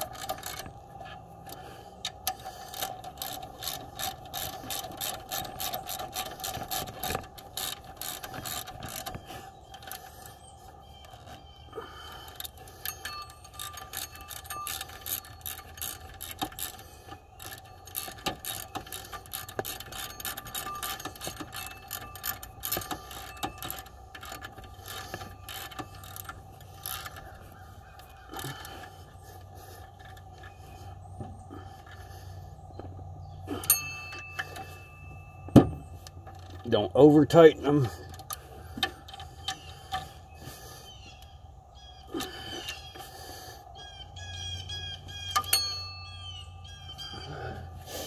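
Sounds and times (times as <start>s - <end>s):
ratchet wrench clicking: 0.0s - 0.7s, 1.4s - 10.3s, 12.0s - 29.1s.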